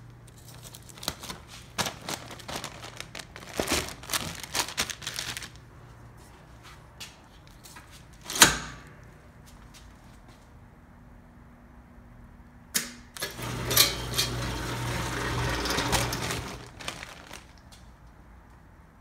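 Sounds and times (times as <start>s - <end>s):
sealer clunk: 12.8s - 16.6s
conveyor motor hum and rattle: 13.2s - 16.7s.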